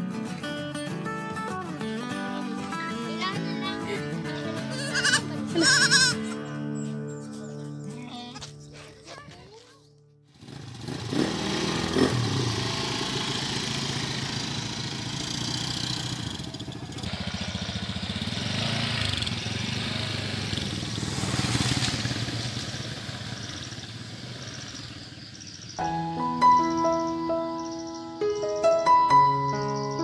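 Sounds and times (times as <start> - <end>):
motor scooter engines: 2.2 - 7.4, 10.3 - 25.9.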